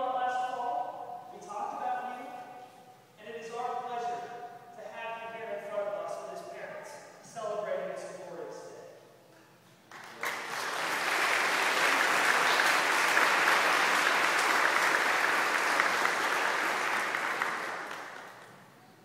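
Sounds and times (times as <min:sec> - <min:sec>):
congregation applauding: 0:09.9 - 0:18.7.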